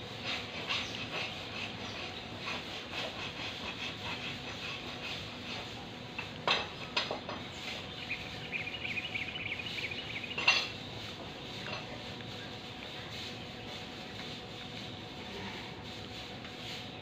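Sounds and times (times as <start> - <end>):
metal tools tapping horseshoe: 6.2 - 7.5, 10.3 - 10.8, 11.6 - 12.0.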